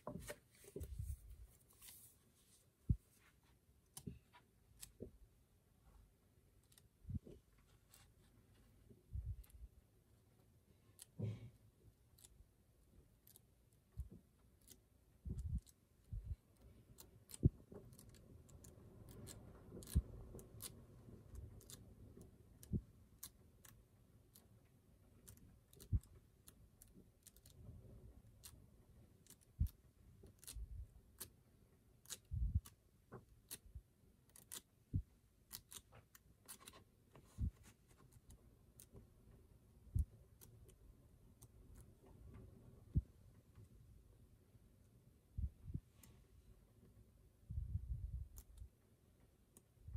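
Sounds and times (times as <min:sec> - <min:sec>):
book pages being turned: 0:00.0 - 0:05.1, 0:06.6 - 0:08.8, 0:35.5 - 0:39.0.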